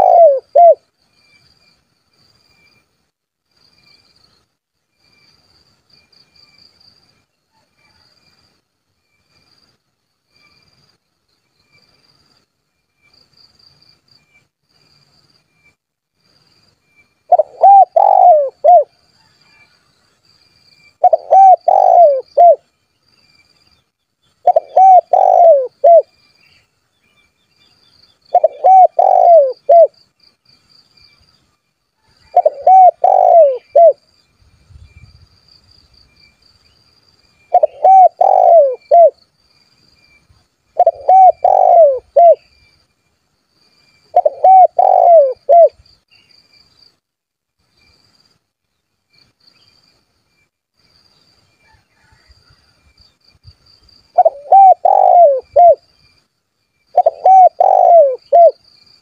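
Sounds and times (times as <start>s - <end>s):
dove cooing: 0.0s - 0.8s, 17.3s - 18.9s, 21.0s - 22.6s, 24.4s - 26.1s, 28.3s - 30.0s, 32.3s - 34.0s, 37.5s - 39.2s, 40.8s - 42.5s, 44.1s - 45.8s, 54.2s - 55.8s, 56.9s - 58.6s
insects chirring: 0.0s - 59.0s.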